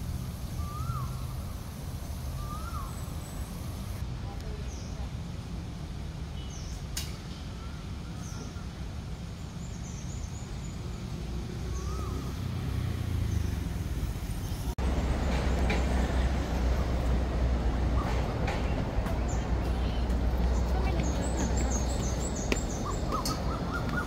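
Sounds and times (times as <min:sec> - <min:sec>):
road traffic rumble: 0:00.0 - 0:24.0
bird chirps: 0:02.3 - 0:03.9, 0:19.3 - 0:24.0.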